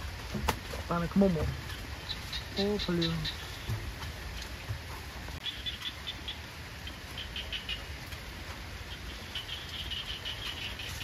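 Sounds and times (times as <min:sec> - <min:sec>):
small animals chirping: 0:02.0 - 0:03.7.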